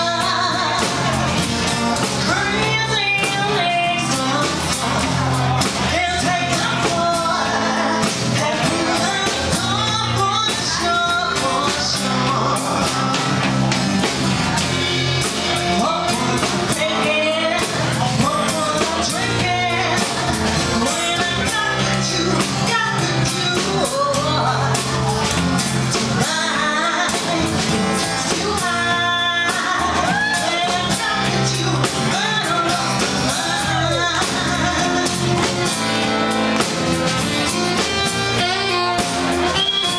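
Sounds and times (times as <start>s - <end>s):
drums: 0.0s - 39.9s
electric guitar: 0.0s - 39.9s
woman singing: 0.0s - 39.9s
tenor saxophone: 33.8s - 39.9s.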